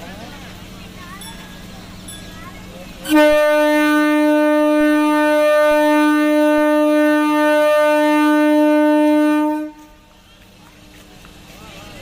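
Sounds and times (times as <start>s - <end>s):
electric train horn blast: 3.0s - 10.1s.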